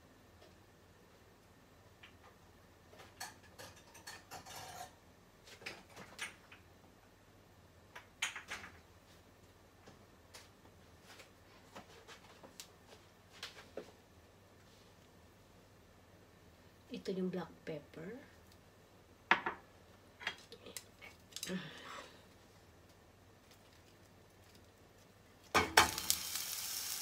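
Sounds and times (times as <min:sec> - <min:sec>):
kitchen items clicking and clinking: 0:03.0 - 0:05.0.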